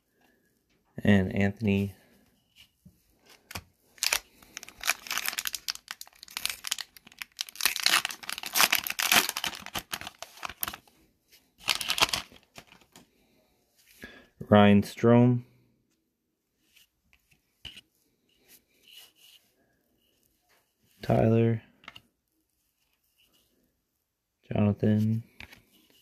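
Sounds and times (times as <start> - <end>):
foil wrapper tearing and crinkling: 3.5 - 10.8, 11.6 - 12.8.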